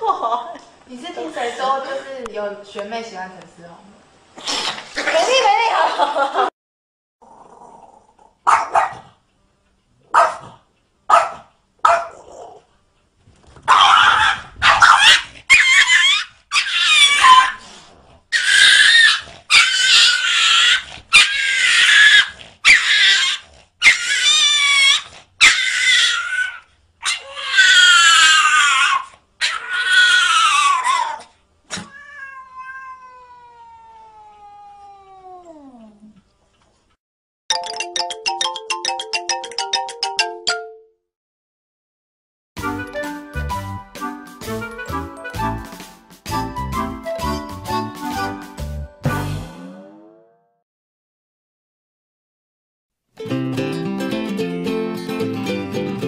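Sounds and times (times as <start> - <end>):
cat yowling: 13.7 - 17.6, 18.3 - 36.0
falling tone: 49.1 - 50.5.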